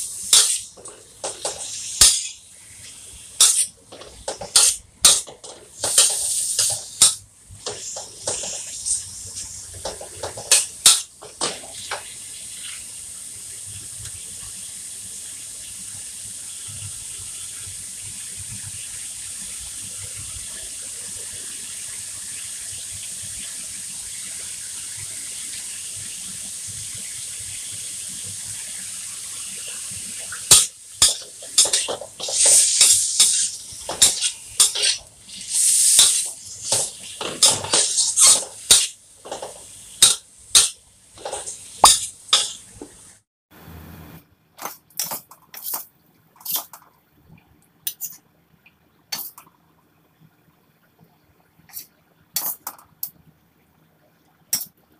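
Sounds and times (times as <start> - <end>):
shrimp sizzling in butter: 0.0 - 12.0, 29.4 - 43.1
metal spatula scraping wok: 3.4 - 11.7, 30.5 - 42.7.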